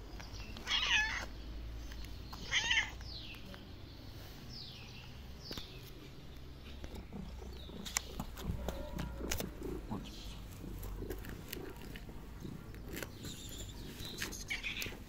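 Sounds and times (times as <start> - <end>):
cat meowing: 0.6 - 1.3, 2.4 - 3.0, 14.3 - 15.0.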